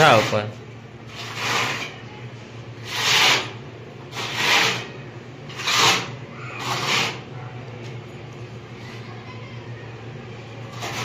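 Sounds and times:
putty knife scraping cement wall: 0.0 - 0.5, 1.1 - 2.0, 2.8 - 7.3, 10.7 - 11.0.

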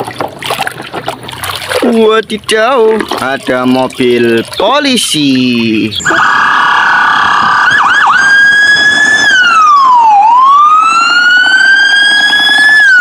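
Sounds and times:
police car siren wailing: 6.0 - 13.0.

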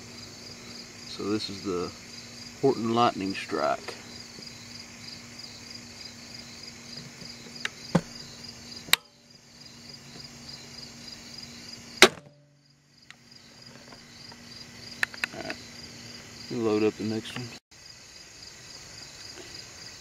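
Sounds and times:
crickets chirping: 0.0 - 20.0
crossbow shot snap: 12.0 - 12.4.

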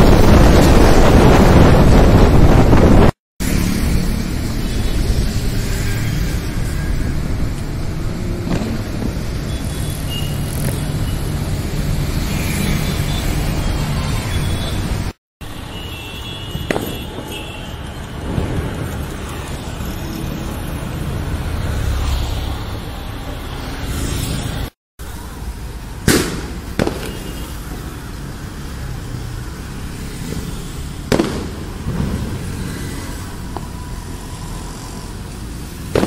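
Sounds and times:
city road traffic: 0.0 - 36.0
sharp cracks: 26.0 - 27.3, 31.1 - 32.2.

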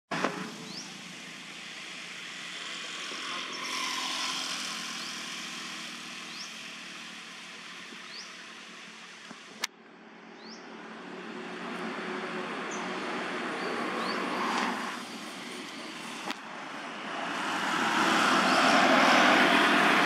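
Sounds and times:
passing vehicle rush: 0.1 - 9.1, 10.4 - 20.0
bird chirping: 8.0 - 8.4, 10.3 - 10.8.

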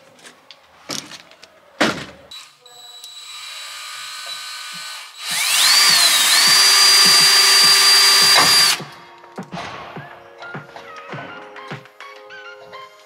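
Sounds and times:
cordless drill whining on metal: 2.3 - 8.8.

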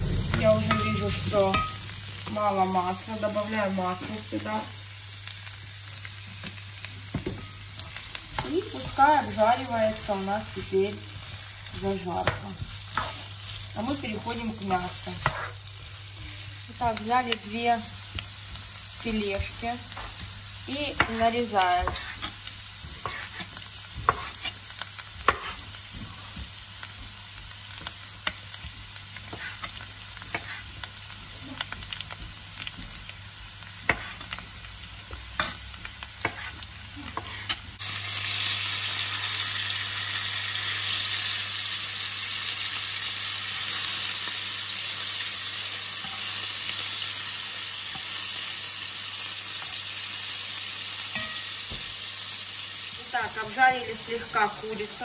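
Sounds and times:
spatula stirring in a pan: 0.0 - 4.6, 6.3 - 17.3, 18.0 - 37.8, 51.0 - 51.9
meat sizzling in a frying pan: 0.0 - 55.0.

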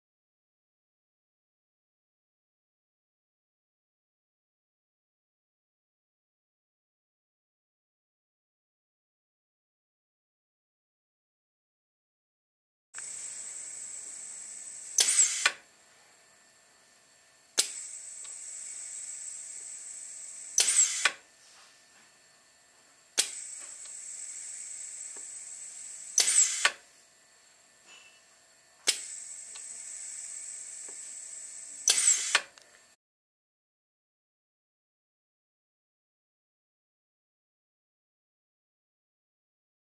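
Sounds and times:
loud burst of air: 13.0 - 15.6, 17.6 - 21.2, 23.2 - 26.8, 28.9 - 32.5
steady air hiss: 13.0 - 15.6, 17.6 - 21.2, 23.2 - 27.0, 28.8 - 32.5.

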